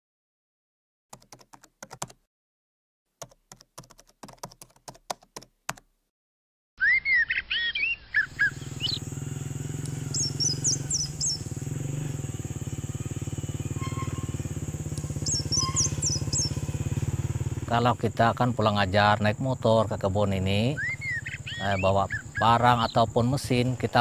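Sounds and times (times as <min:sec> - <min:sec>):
birds chirping: 0:06.8 - 0:24.0
steady engine hum: 0:08.2 - 0:24.0
constant high whine: 0:08.4 - 0:24.0.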